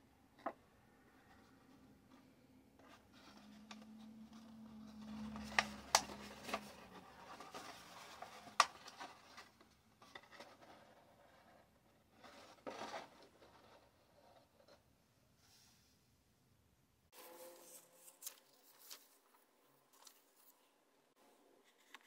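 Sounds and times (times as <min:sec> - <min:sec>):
paper rustling: 0:02.8 - 0:11.0, 0:17.2 - 0:20.7.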